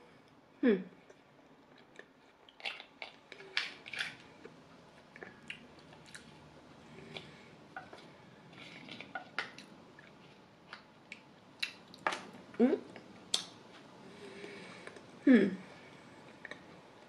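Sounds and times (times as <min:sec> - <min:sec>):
soft chewing: 0:00.3 - 0:12.1, 0:16.2 - 0:17.0.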